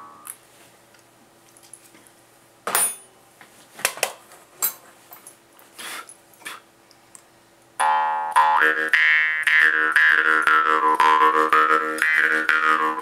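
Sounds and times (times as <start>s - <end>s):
short hissing noises: 5.8s - 6.6s
jaw harp twanging: 7.8s - 13.0s.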